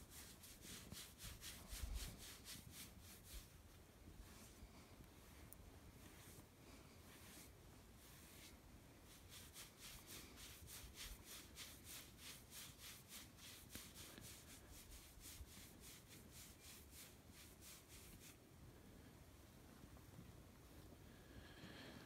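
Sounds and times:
hand rubbing fur: 0:00.0 - 0:18.4.

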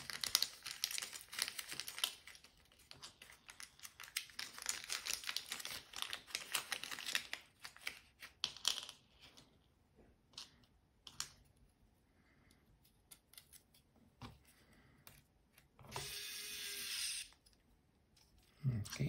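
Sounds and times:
plastic bag crinkling: 0:00.0 - 0:08.2.

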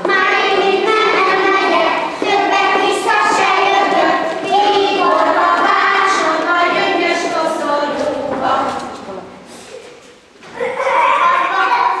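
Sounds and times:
children singing in unison: 0:00.0 - 0:09.1.

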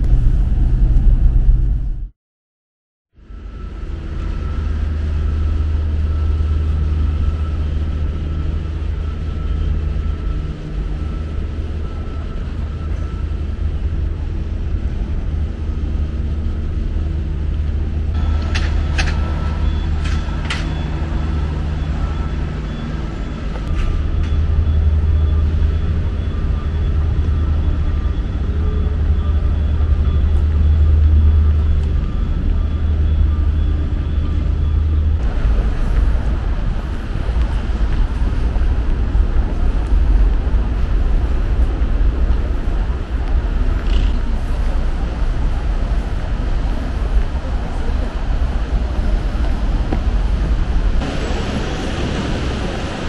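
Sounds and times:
road traffic rumble: 0:00.0 - 0:02.0, 0:03.2 - 0:53.0.

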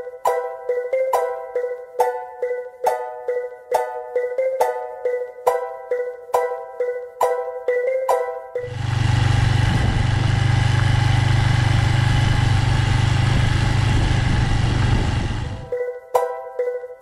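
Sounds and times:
motorcycle engine idling: 0:08.7 - 0:15.7.

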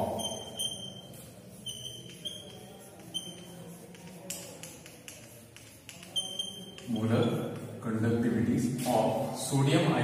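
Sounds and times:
chalk squeaking on blackboard: 0:00.0 - 0:07.9
chalk tapping and scraping: 0:00.0 - 0:09.3.

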